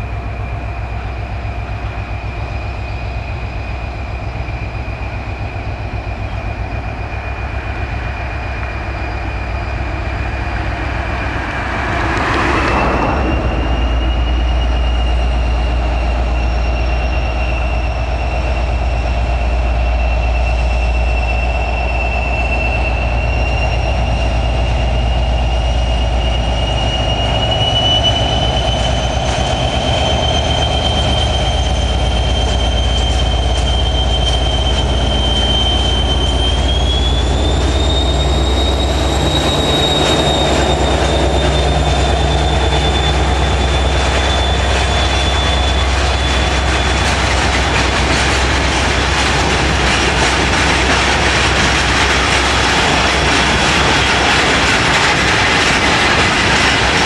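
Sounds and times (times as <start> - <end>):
diesel locomotive engine under load: 0.0 - 57.0
high whine: 0.0 - 57.0.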